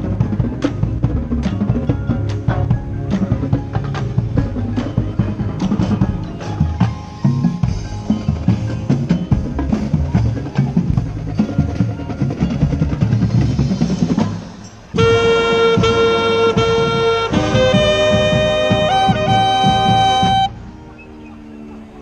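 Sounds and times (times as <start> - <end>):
snare and bass drums: 0.0 - 20.6
saxophones and brass chord: 15.0 - 20.9.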